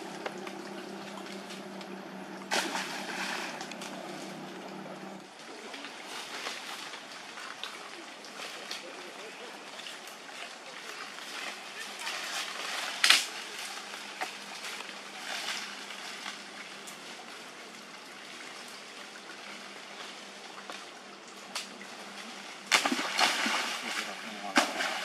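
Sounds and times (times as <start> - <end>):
branches snapping: 0.0 - 4.8, 12.2 - 17.0, 22.7 - 25.0
leaves and branches rustling: 0.0 - 25.0
steady outdoor hiss: 0.0 - 25.0.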